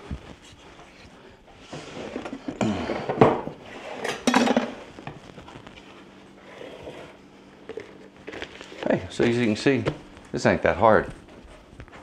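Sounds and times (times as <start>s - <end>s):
metal bowls clattering on wood: 1.8s - 4.9s.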